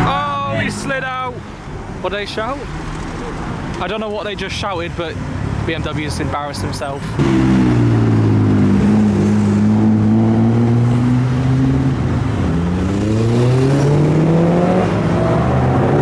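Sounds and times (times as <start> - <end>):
car engine accelerating: 7.0 - 16.0.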